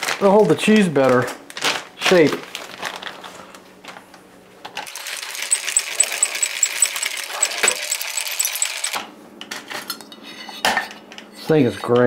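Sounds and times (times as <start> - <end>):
rotary cheese grater rasping: 5.4 - 9.0.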